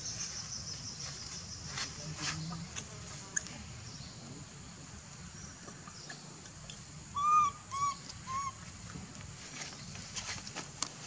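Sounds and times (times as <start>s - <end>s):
baby monkey coo calls: 7.1s - 8.6s.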